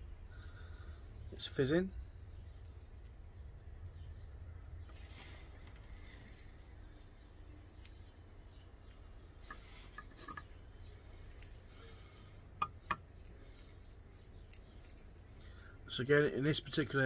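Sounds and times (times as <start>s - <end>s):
small crackles and ticks: 0.1s - 17.0s
sharp clicks: 7.7s - 17.0s.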